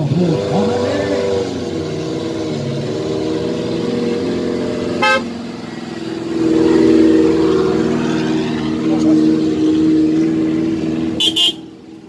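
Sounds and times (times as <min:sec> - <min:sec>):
off-road vehicle engines running: 0:00.0 - 0:12.0
short horn toot: 0:05.0 - 0:05.3, 0:11.2 - 0:11.7.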